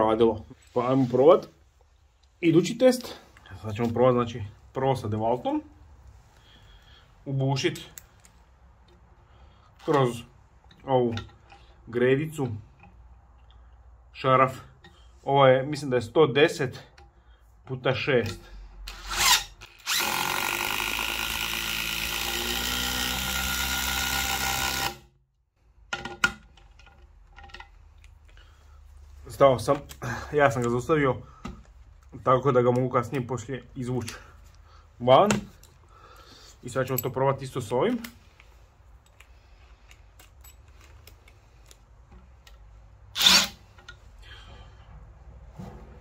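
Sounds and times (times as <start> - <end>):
impact driver driving screw into wood: 18.9 - 25.1, 43.2 - 43.6
tools clicking and tapping: 25.9 - 28.4.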